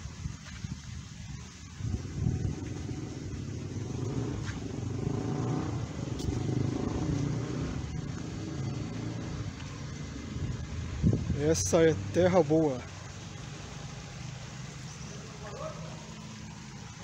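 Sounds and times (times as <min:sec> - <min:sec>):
vehicle engine passing: 0:01.8 - 0:17.0.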